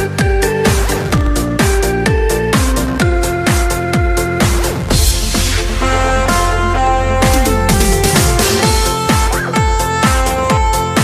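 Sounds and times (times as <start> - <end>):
held synth notes: 0.0 - 11.0
kick-drum beat: 0.0 - 11.0.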